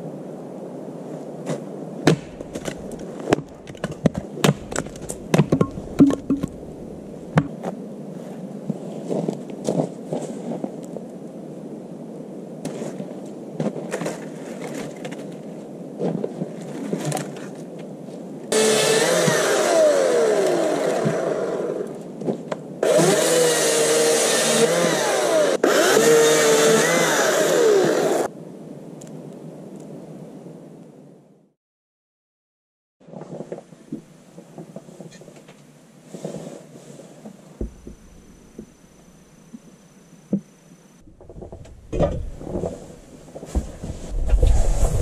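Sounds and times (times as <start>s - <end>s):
axe chopping wood: 2.0s - 6.8s, 37.6s - 38.7s
chainsaw revving and cutting log: 18.5s - 21.8s, 22.8s - 28.3s.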